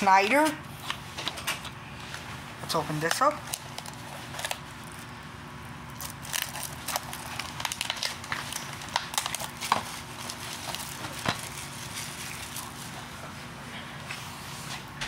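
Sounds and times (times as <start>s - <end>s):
shrink wrap crinkling and tearing: 2.9s - 13.1s.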